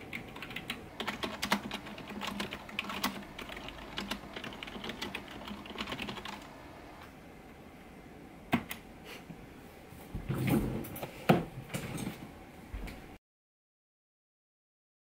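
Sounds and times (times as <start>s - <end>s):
fast typing on keyboard: 0.0s - 6.6s.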